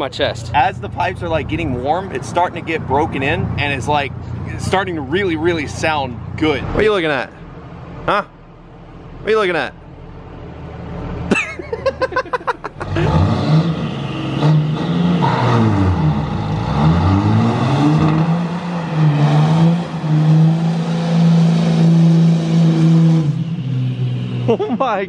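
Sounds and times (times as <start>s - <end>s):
truck engine revving: 0.0s - 8.3s, 10.0s - 25.0s
tires spinning: 11.0s - 25.0s.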